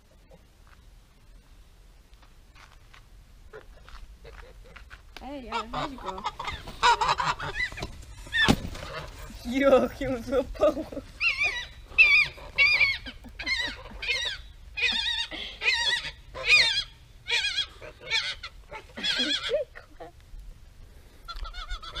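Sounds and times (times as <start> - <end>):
geese honking: 3.5 - 9.8, 11.2 - 20.1, 21.3 - 22.0.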